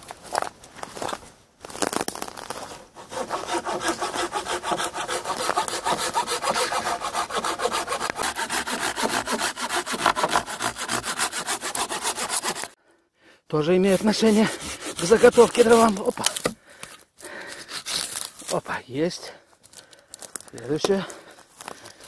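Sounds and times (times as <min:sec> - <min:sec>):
hand saw cutting log: 0:02.8 - 0:12.8, 0:13.8 - 0:16.6, 0:17.6 - 0:18.3.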